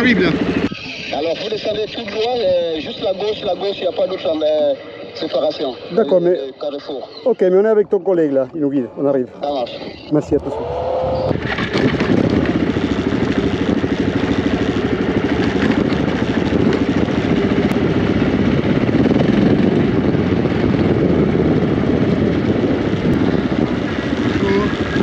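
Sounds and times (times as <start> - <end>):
motorcycle engine running: 0.0 - 8.4, 9.3 - 25.0
road and wind noise: 0.0 - 25.0.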